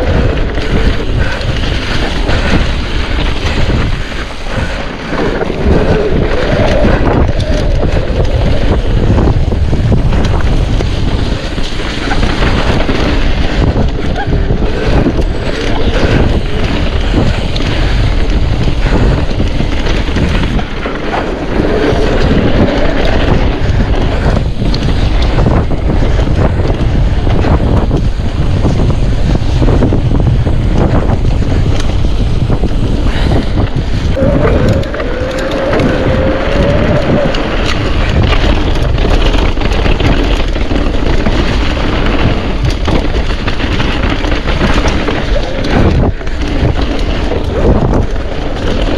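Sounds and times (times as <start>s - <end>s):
bike knocking and rattling: 0.0s - 48.9s
tyres rumbling: 0.0s - 48.9s
wind rushing over microphone: 0.0s - 48.9s.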